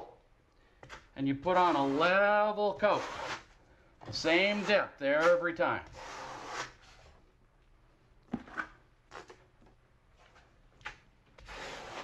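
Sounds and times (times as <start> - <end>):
trowel scraping mortar: 1.4 - 3.5, 4.1 - 7.2, 11.4 - 12.0.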